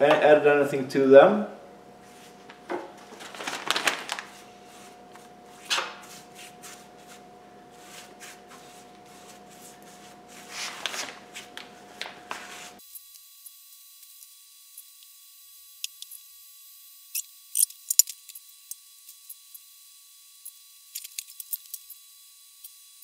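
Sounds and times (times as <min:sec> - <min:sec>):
plastic bag crinkling: 0:02.5 - 0:04.5, 0:10.6 - 0:11.8.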